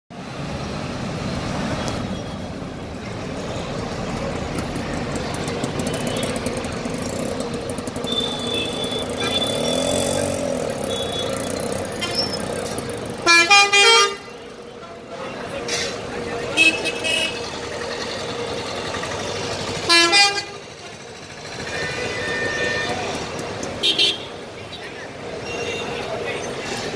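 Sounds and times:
bus engines running: 0.1s - 26.9s
road traffic: 0.1s - 26.9s
loud multi-note horn blaring: 8.0s - 12.3s, 13.1s - 14.4s, 16.5s - 17.6s, 19.7s - 20.8s.

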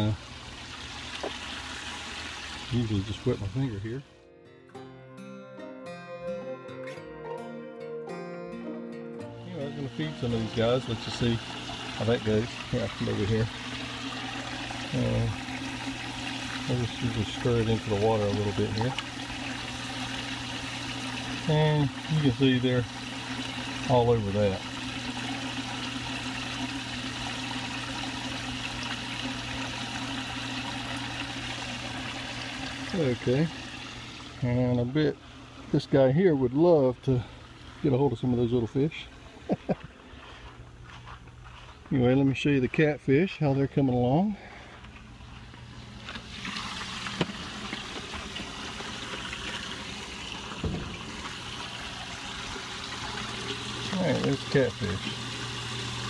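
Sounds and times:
water rushing in fish tank: 0.0s - 3.7s, 9.9s - 38.0s, 45.7s - 56.0s
low steady hum: 9.4s - 56.0s.

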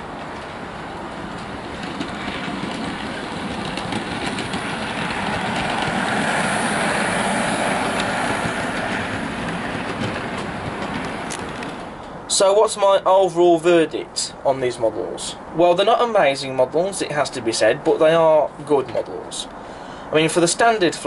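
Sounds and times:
model train running on track: 0.0s - 12.2s.

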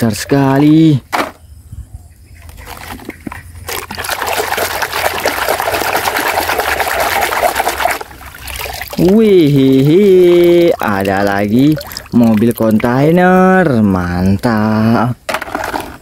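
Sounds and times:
water sloshing and splashing: 2.4s - 13.2s.

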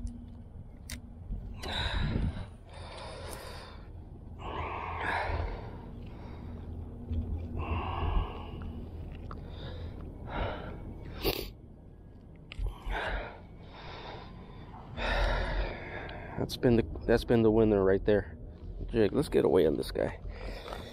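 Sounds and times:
low rumble: 0.0s - 20.9s
person breathing: 1.5s - 11.6s, 12.6s - 16.4s, 20.2s - 20.9s.

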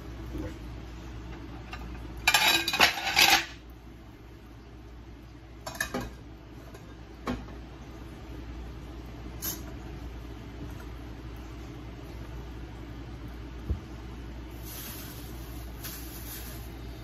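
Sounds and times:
dishes clattering: 1.6s - 3.6s, 5.6s - 7.6s.

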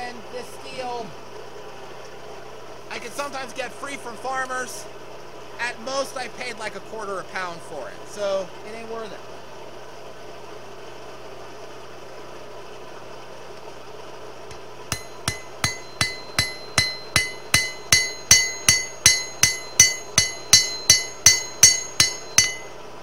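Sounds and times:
hammer striking steel on anvil: 14.5s - 22.8s.

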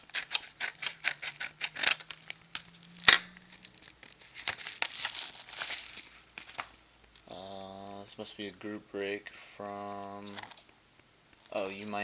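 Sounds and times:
paper envelope tearing: 0.0s - 6.6s.

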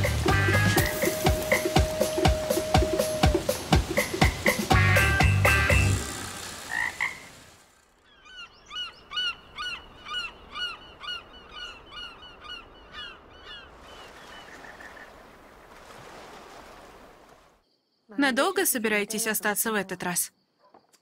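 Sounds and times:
frog croaking: 6.7s - 7.4s.

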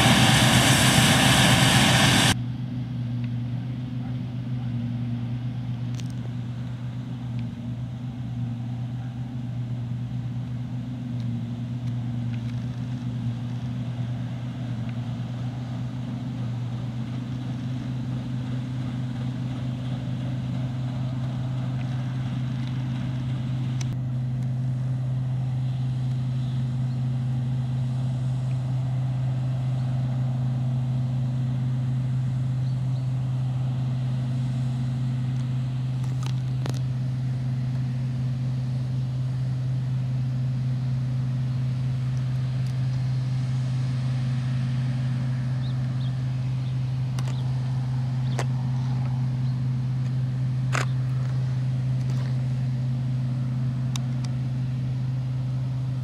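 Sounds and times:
combine harvester engine droning: 0.0s - 56.0s.

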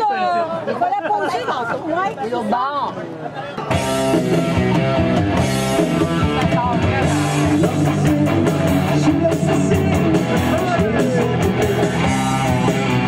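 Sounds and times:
drum kit beating: 3.6s - 13.0s
guitar chords: 3.7s - 13.0s.

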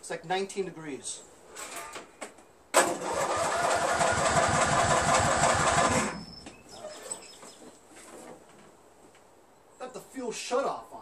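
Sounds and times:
electric starter cranking engine: 2.8s - 6.3s.

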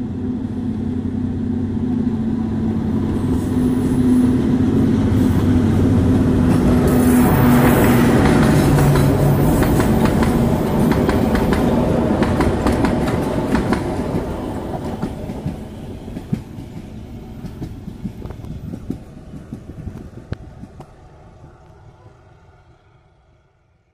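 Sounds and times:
locomotive engine: 0.0s - 23.8s
train wheels clicking over rail joints: 6.4s - 21.0s.

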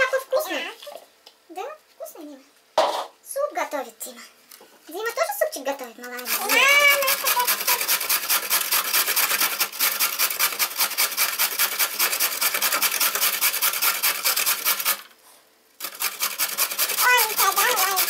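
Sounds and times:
carrot rasping on box grater: 6.2s - 15.1s, 15.8s - 18.0s.

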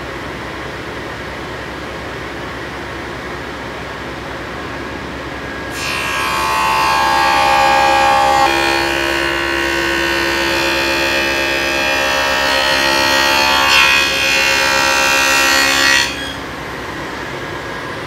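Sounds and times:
table saw running hum: 4.2s - 18.0s
table saw whining cut: 5.3s - 17.4s.

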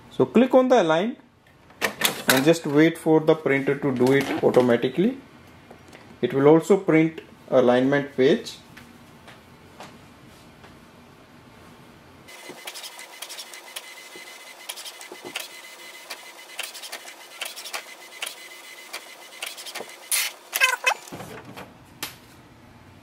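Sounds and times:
printer clicking: 12.3s - 21.0s
loud printer mechanical sounds: 12.3s - 21.5s
inkjet printer carriage whine: 12.3s - 21.6s.

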